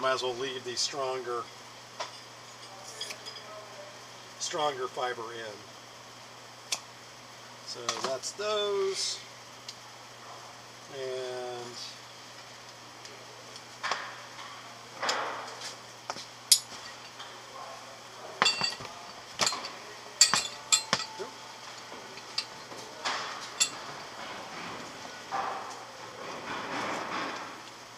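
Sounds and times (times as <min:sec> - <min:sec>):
metal tools clinking on wood: 0:18.4 - 0:24.3.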